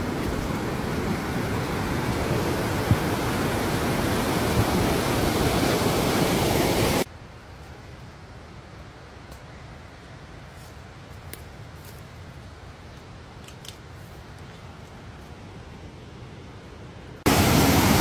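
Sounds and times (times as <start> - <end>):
rushing creek water: 0.0 - 7.1, 17.2 - 18.0
faint outdoor hiss: 0.0 - 18.0.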